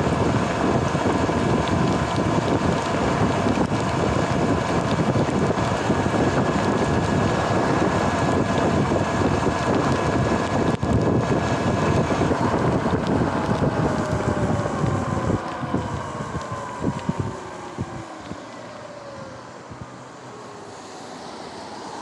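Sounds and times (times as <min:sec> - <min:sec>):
electric motor whine: 0:00.0 - 0:19.7
wind buffeting microphone: 0:00.0 - 0:19.9
tyre hiss on wet pavement: 0:19.4 - 0:22.0.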